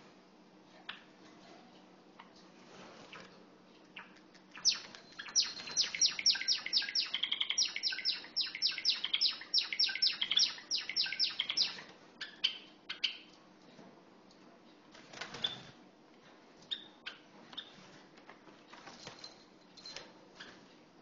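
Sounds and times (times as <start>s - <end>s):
sparrow singing clicking notes: 4.0s - 13.3s.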